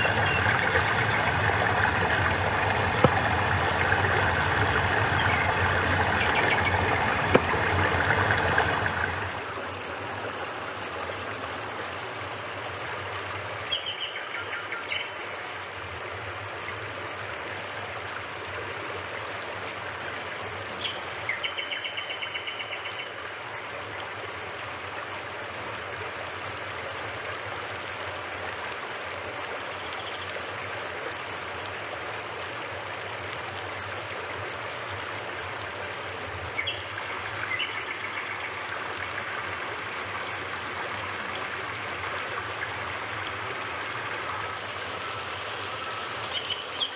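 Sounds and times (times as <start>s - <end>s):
stream rushing: 0.0s - 46.9s.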